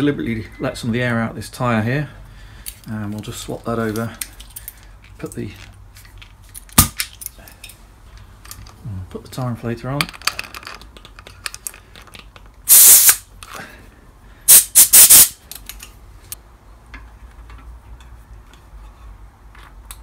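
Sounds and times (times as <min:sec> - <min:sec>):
compressed air hissing: 0:12.7 - 0:13.2, 0:14.4 - 0:15.4.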